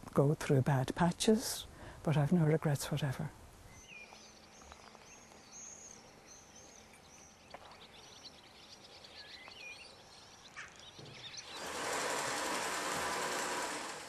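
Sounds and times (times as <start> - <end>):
small birds chirping: 2.2 - 12.5.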